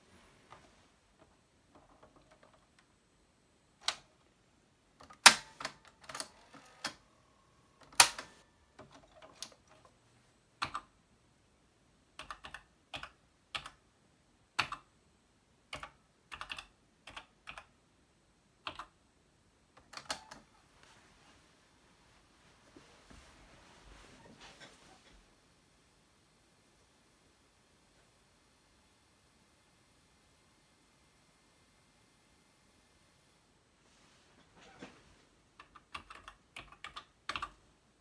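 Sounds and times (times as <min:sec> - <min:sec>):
power switch clicks: 0:03.8 - 0:09.7
keystrokes on keyboard: 0:03.8 - 0:09.8, 0:12.2 - 0:13.8, 0:14.6 - 0:14.9, 0:15.7 - 0:17.7, 0:18.6 - 0:19.0, 0:19.8 - 0:20.5, 0:35.6 - 0:37.6
cassette recorder key clicks: 0:03.9 - 0:09.6.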